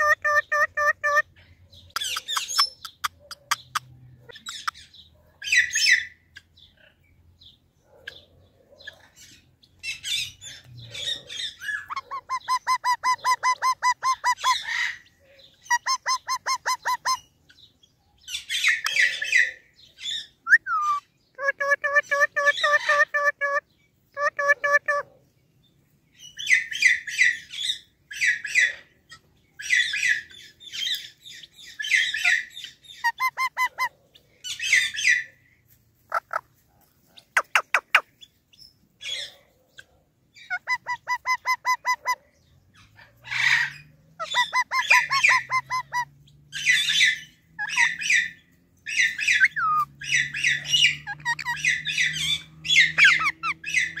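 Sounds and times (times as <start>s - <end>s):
parakeets squawking: 0.0s - 1.3s, 9.2s - 17.3s, 20.8s - 23.6s, 29.6s - 33.9s, 40.4s - 42.2s, 42.8s - 54.0s
parakeet chatter: 42.9s - 54.0s.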